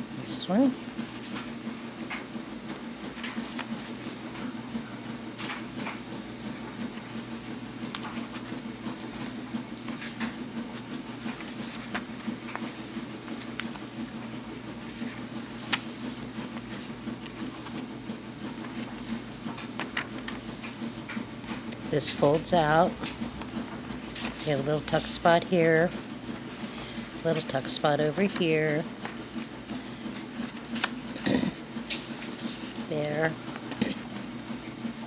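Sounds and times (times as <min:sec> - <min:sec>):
steady low hum: 0:00.0 - 0:35.0
paper pages rustling: 0:00.7 - 0:01.6, 0:02.6 - 0:31.2, 0:31.8 - 0:35.0.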